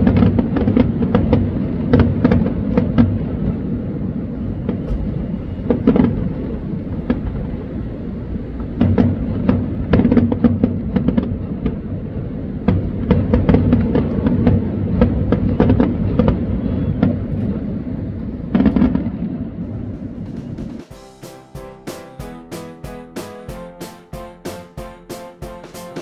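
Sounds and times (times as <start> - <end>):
fireworks crackling pops: 0.0 - 3.6, 4.6 - 7.7, 8.6 - 11.9, 12.7 - 17.6
fireworks booming: 0.0 - 26.0.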